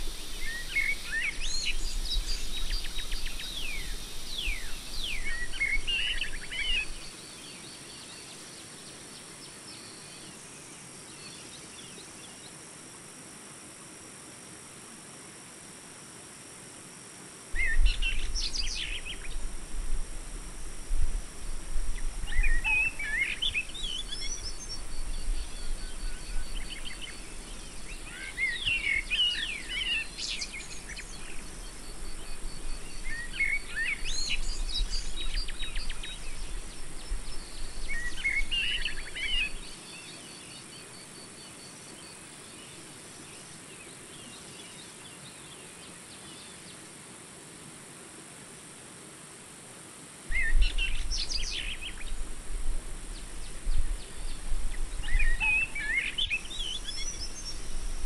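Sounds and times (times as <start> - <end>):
insect drone: 0.0 - 58.0
birds chirping: 22.0 - 36.4, 53.2 - 57.8.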